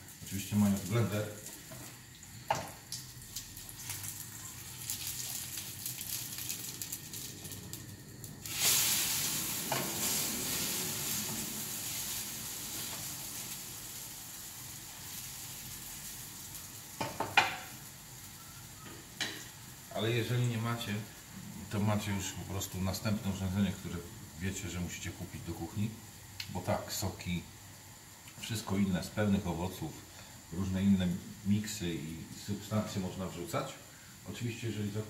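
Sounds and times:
pancakes sizzling in oil: 0:00.0 - 0:35.0.

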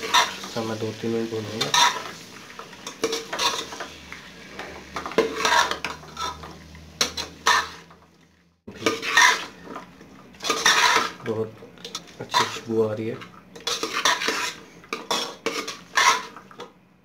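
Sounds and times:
metal spoon scraping a pot: 0:00.0 - 0:00.6, 0:01.4 - 0:02.2, 0:02.8 - 0:03.9, 0:05.0 - 0:07.9, 0:08.7 - 0:16.6.

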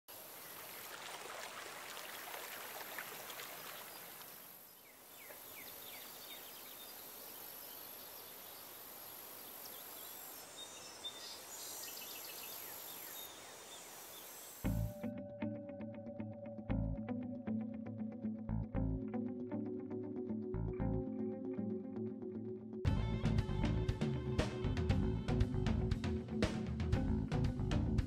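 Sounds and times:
steady background hiss: 0:00.1 - 0:14.7
music: 0:14.6 - 0:28.0.

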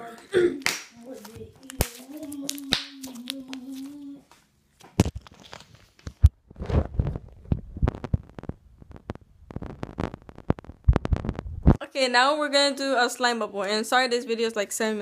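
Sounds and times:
phone microphone handling noise: 0:06.1 - 0:11.8.

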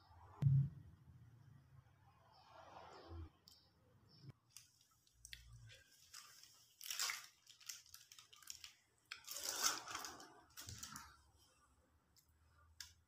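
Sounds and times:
paper wrapper rustling: 0:04.5 - 0:11.2.

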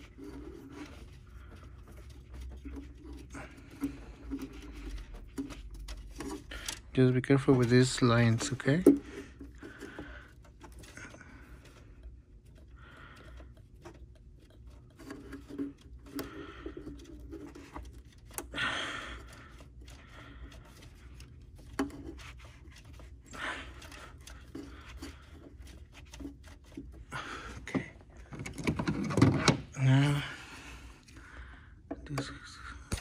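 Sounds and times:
rubber hose clicks and scrapes: 0:00.0 - 0:18.6, 0:19.2 - 0:29.8
low steady hum: 0:00.0 - 0:33.0.

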